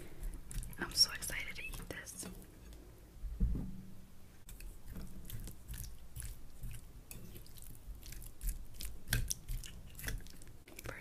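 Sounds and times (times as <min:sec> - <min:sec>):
close chewing with mouth clicks: 0:00.0 - 0:01.0, 0:04.5 - 0:11.0.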